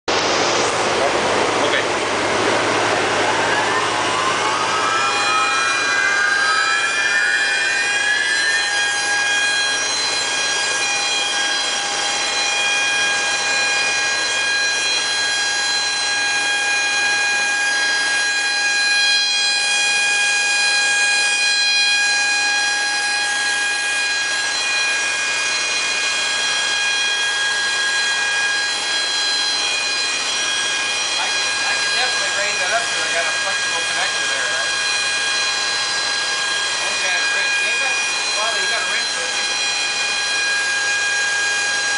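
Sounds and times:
blower whining: 0.1s - 41.9s.

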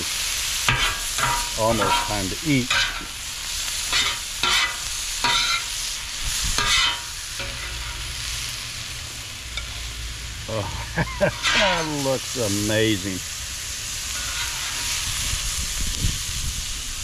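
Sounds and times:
food sizzling on a griddle: 0.0s - 17.0s
metal spatula scraping: 0.7s - 3.2s, 3.8s - 5.7s, 6.6s - 8.2s, 10.6s - 12.4s, 14.0s - 15.2s.

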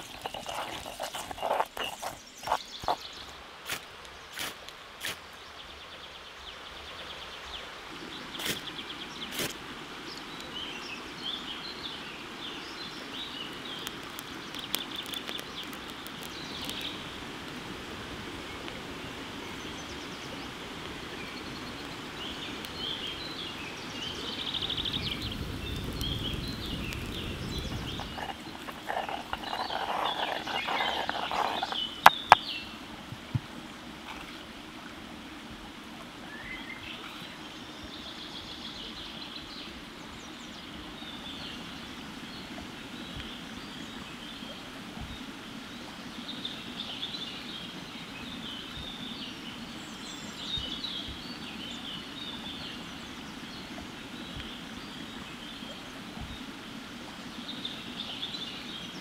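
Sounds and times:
small birds chirping and singing: 0.0s - 3.3s, 21.2s - 32.8s
steady outdoor hiss: 0.0s - 59.0s.

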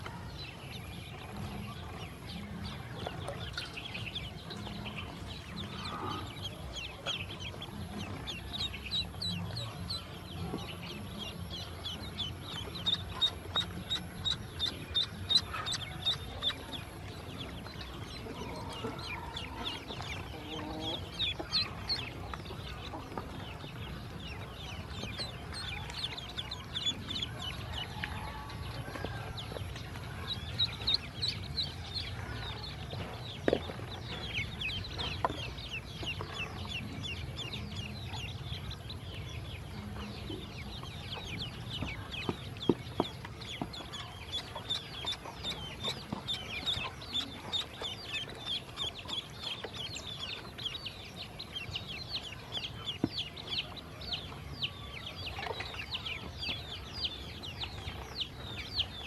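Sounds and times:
ducklings peeping: 0.0s - 59.0s.

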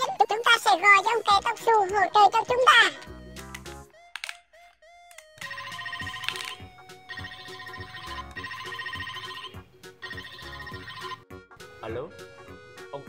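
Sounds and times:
background music: 0.0s - 13.0s
phone ringtone trilling: 5.4s - 11.4s.

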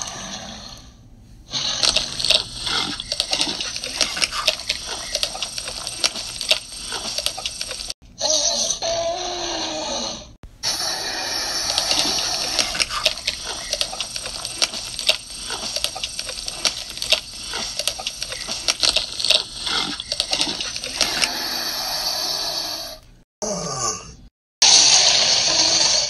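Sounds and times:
wet gushing crackling flesh tearing: 11.7s - 21.3s.

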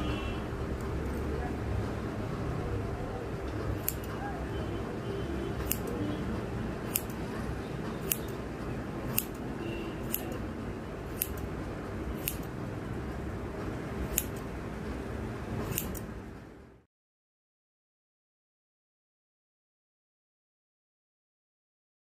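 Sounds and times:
scissors snipping hair: 3.7s - 4.3s, 5.6s - 6.0s, 6.9s - 7.2s, 8.0s - 8.4s, 9.0s - 9.4s, 10.0s - 10.5s, 11.1s - 11.5s, 12.2s - 12.5s, 14.0s - 14.5s, 15.6s - 16.1s.

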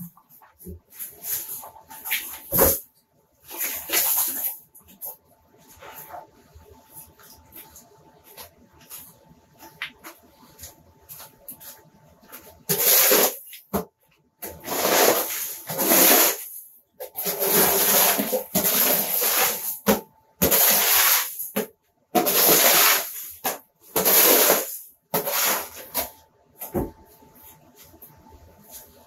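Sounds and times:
debris scraped across floor: 14.5s - 19.8s.

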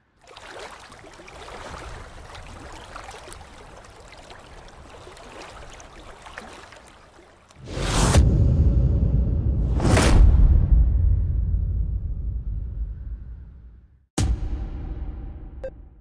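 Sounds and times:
water splashing and trickling: 0.0s - 7.8s.

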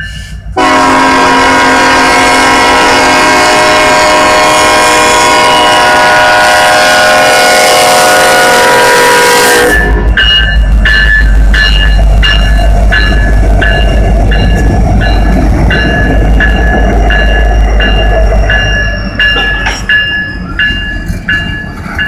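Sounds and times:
crossing bell dinging: 0.0s - 3.2s, 8.5s - 22.0s
locomotives rumbling past: 0.4s - 22.0s
locomotive air horn blasting: 0.6s - 10.2s.

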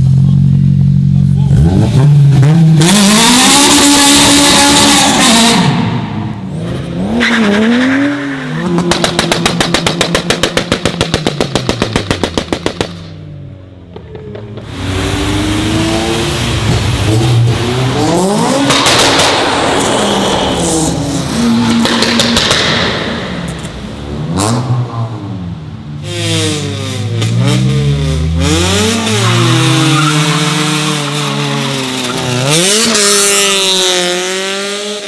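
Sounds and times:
car engines revving: 0.0s - 35.0s
car accelerating away: 14.0s - 35.0s.

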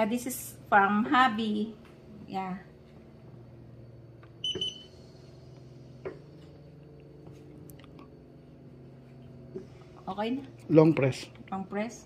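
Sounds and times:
steady low hum: 0.0s - 12.0s
short electronic beep: 4.4s - 4.9s.

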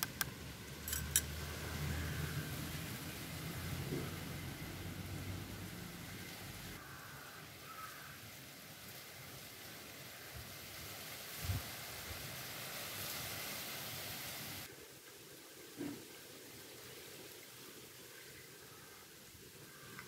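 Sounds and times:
gravy sizzling and bubbling: 0.0s - 8.2s.

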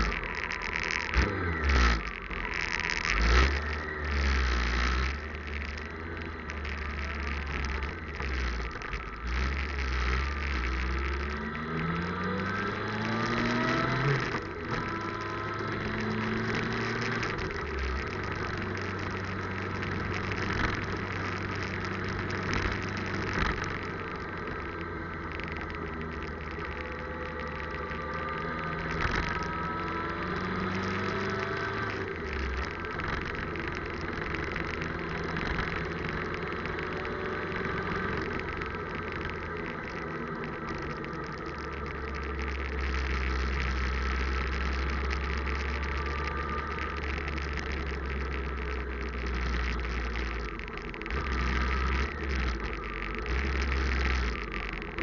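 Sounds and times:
motorcycle engine accelerating: 0.0s - 55.0s.

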